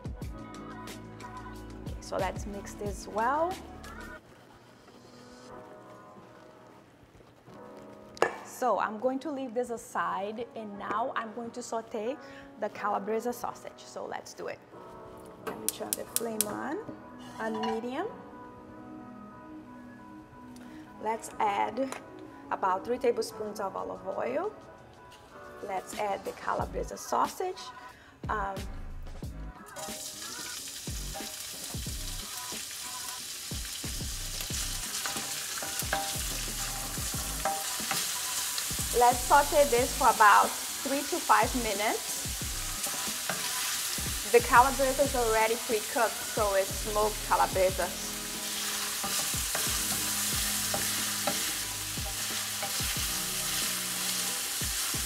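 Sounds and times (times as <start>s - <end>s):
sausage sizzling in oil: 29.7s - 55.0s
wooden spoon scraping a pan: 34.6s - 44.7s, 48.4s - 54.2s.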